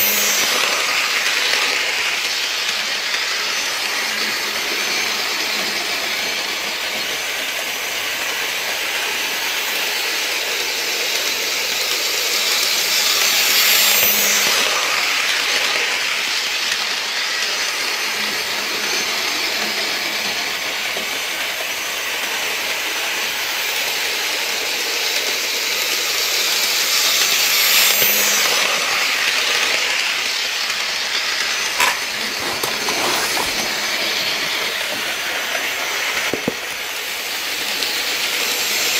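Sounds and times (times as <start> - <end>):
model train whirring on track: 0.0 - 38.9.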